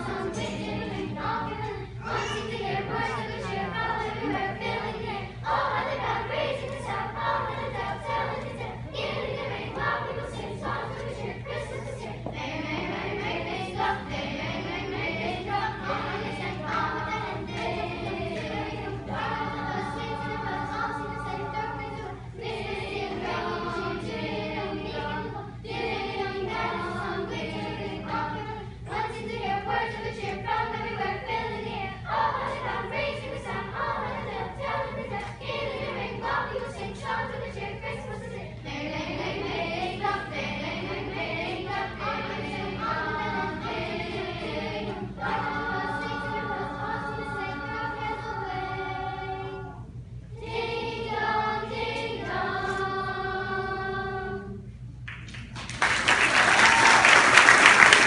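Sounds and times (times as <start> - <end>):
children's choir singing: 0.0 - 54.7, 55.8 - 58.0
audience applause: 55.3 - 58.0.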